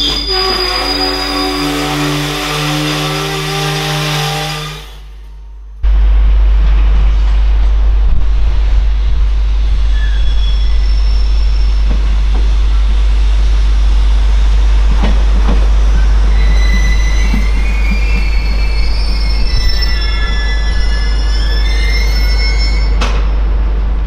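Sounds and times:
steel wheels squealing on rails: 0.0s - 5.4s, 9.8s - 12.9s, 15.6s - 23.5s
freight wagons rumbling: 11.0s - 24.0s.

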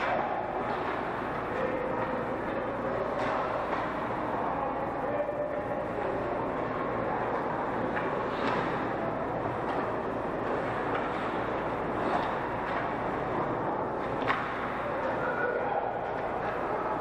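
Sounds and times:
hockey sticks and puck clacking: 0.0s - 5.0s, 5.6s - 17.0s
arena noise: 0.0s - 17.0s
skates scraping ice: 6.0s - 15.3s.

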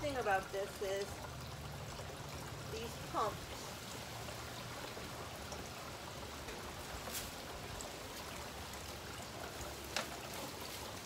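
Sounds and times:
fountain water trickling and splashing: 0.0s - 11.0s.

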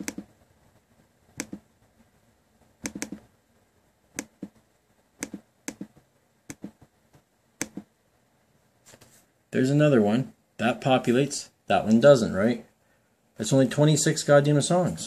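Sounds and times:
laptop clicks: 0.0s - 0.3s, 1.4s - 1.6s, 2.8s - 3.3s, 5.2s - 5.9s, 6.5s - 6.8s, 7.6s - 7.9s.

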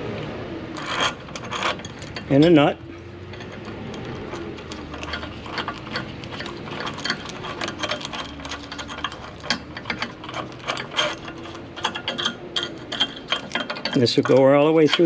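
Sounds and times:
nut spinning on threaded bolt: 0.7s - 15.0s.

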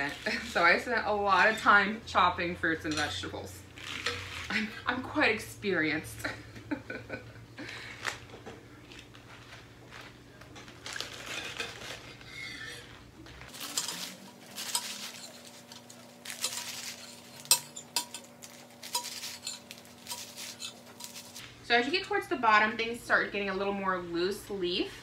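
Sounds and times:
knife chopping lettuce: 13.5s - 21.4s.

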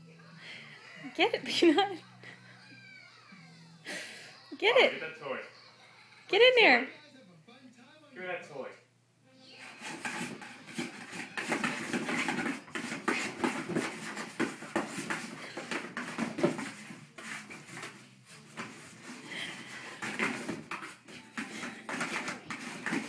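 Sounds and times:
dog paws scratching cardboard: 9.6s - 23.0s.

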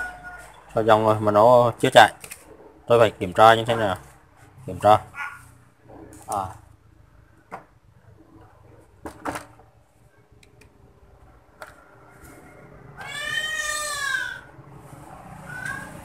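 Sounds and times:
cat meowing: 13.0s - 14.5s, 15.4s - 16.0s.

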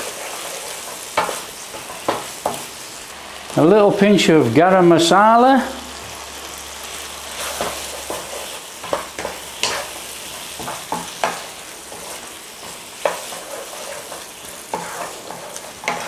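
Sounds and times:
spatula scraping a pan: 0.0s - 2.7s, 7.3s - 16.0s
curry sizzling in a frying pan: 0.0s - 16.0s.

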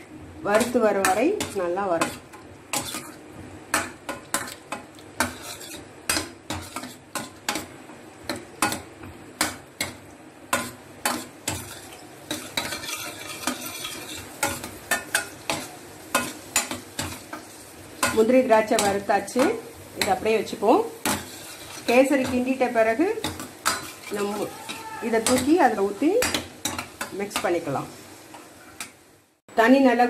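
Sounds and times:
soft frying sizzle: 0.0s - 30.0s
ladle scraping steel pan: 5.2s - 5.9s.

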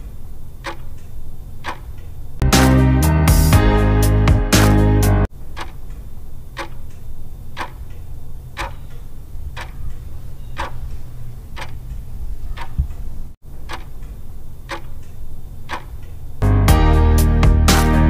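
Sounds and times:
clock ticking: 0.6s - 2.0s, 5.4s - 16.2s
steady low hum: 5.3s - 16.5s.

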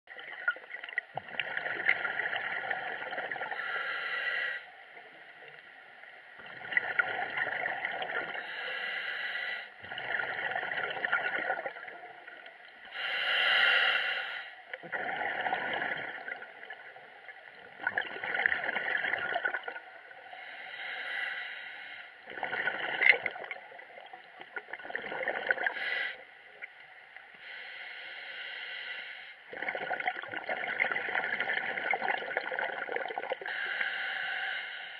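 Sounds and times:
gurgling bubbles: 0.1s - 3.6s, 6.4s - 8.5s, 9.8s - 12.4s, 14.8s - 20.0s, 22.2s - 25.8s, 29.5s - 33.6s
diver breathing through regulator: 3.5s - 4.7s, 8.4s - 9.8s, 12.9s - 14.6s, 20.3s - 22.2s, 27.4s - 29.4s, 33.5s - 34.9s.

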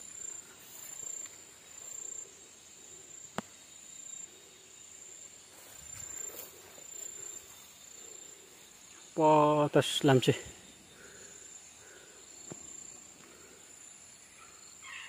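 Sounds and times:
insects trilling: 0.0s - 15.0s.

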